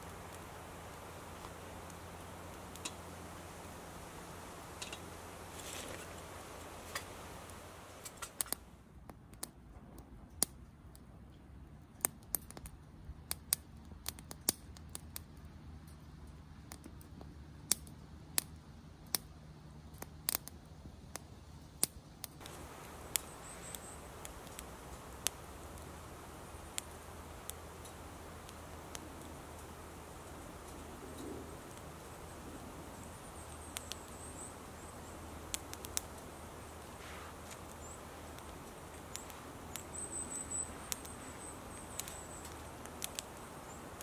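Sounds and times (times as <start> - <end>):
wood fire crackling: 0.0 - 9.6, 11.8 - 44.0
low steady hiss: 0.0 - 44.0.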